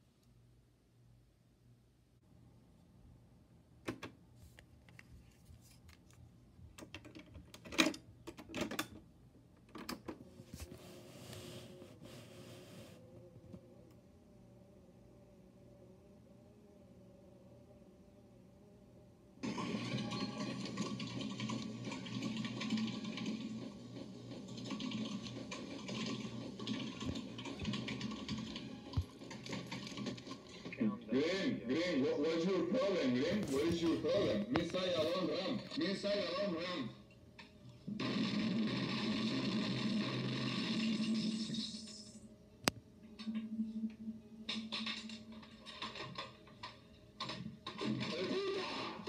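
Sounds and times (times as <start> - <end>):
faint motor hum: 8.0 - 29.4
tape hiss: 9.1 - 49.0.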